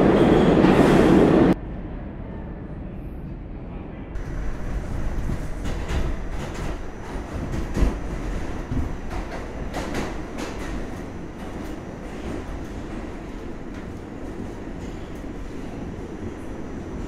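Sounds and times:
train car knocks and rattles: 0:04.2 - 0:15.4
train wheels rumbling on track: 0:04.2 - 0:17.0.

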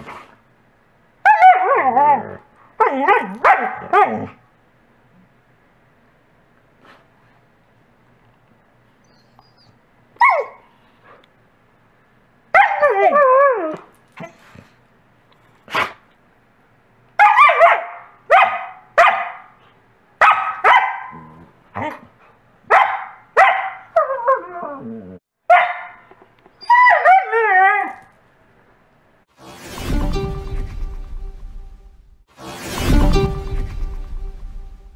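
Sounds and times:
dogs barking: 0:02.8 - 0:04.4, 0:17.2 - 0:19.6, 0:20.2 - 0:21.2, 0:22.7 - 0:24.0, 0:25.5 - 0:26.1
dog whining: 0:09.1 - 0:10.6, 0:24.0 - 0:25.2.

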